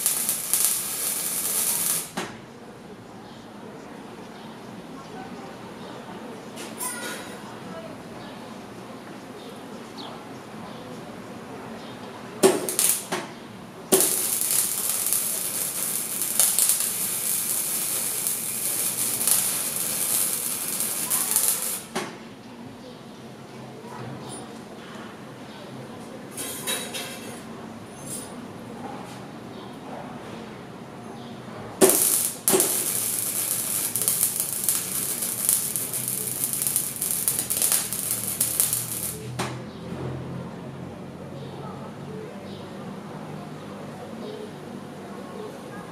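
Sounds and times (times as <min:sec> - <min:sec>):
welding arc crackling sizzle: 0:00.0 - 0:02.2, 0:12.4 - 0:13.2, 0:13.9 - 0:22.0, 0:31.8 - 0:39.4.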